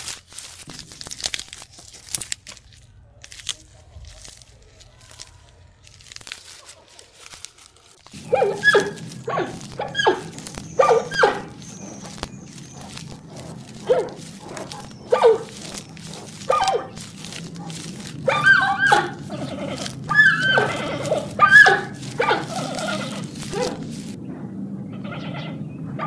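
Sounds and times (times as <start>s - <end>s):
steady low hum: 8.0s - 26.0s
whining animal calls: 8.1s - 24.2s.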